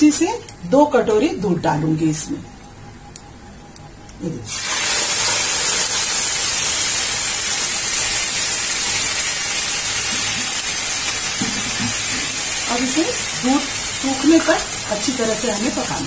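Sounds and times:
milk sizzling in hot pan: 4.5 - 16.0.

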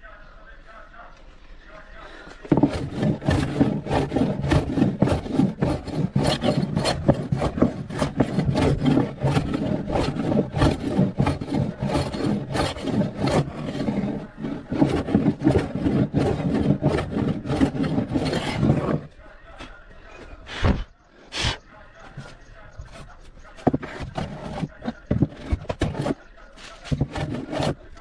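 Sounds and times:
rasping strokes on wood: 2.4 - 19.1, 22.8 - 28.0.

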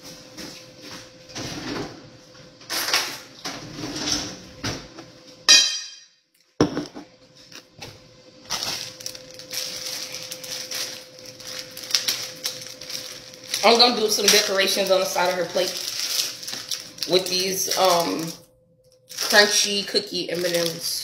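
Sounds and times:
dishes knocking: 6.6 - 7.1
plastic bag crinkling: 8.4 - 21.0.

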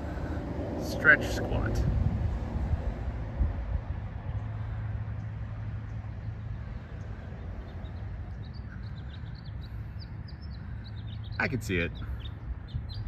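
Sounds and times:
low outdoor rumble: 0.0 - 13.0
small bird chirping: 7.6 - 13.0.

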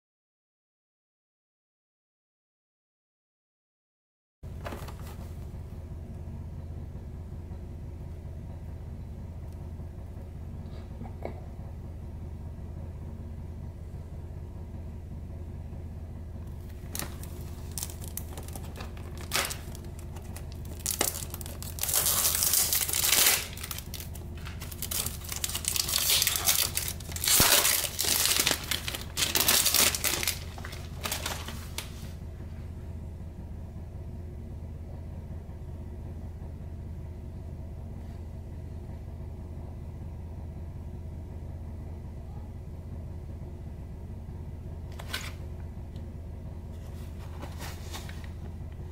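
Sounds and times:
packaging crinkling and tearing: 16.6 - 32.0.

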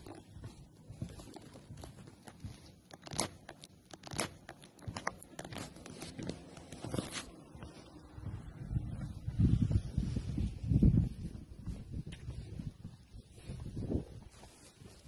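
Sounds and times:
footsteps crunching on walkway: 0.0 - 15.0
wind rumble on microphone: 6.9 - 15.0.

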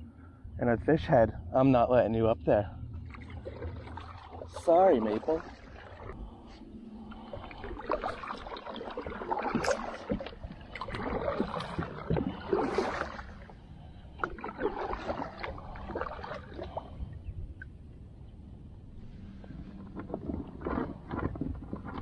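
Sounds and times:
low steady rumble: 0.0 - 22.0
paddle strokes splashing water: 3.0 - 17.0, 19.4 - 22.0.

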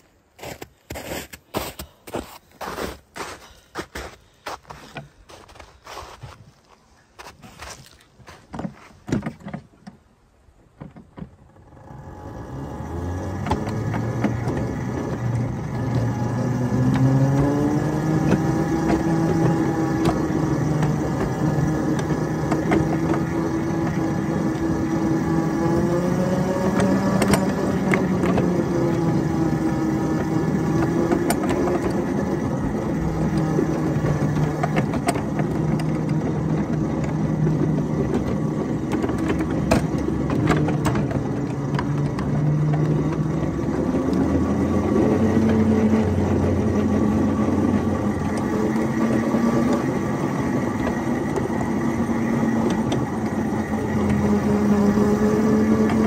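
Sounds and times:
small locomotive engine running: 11.5 - 56.0.

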